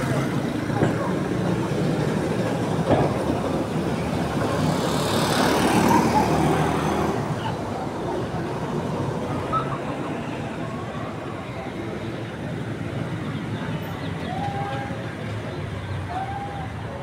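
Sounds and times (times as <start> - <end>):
background traffic: 0.0 - 17.0
vehicle passing: 3.6 - 11.7.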